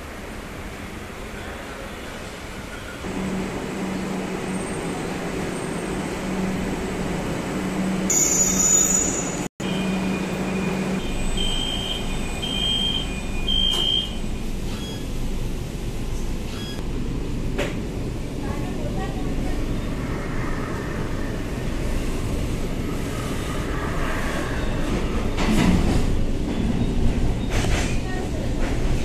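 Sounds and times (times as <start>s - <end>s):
low rumble of train: 0.0s - 29.0s
train humming: 0.0s - 29.0s
high door warning beeps: 9.6s - 15.2s.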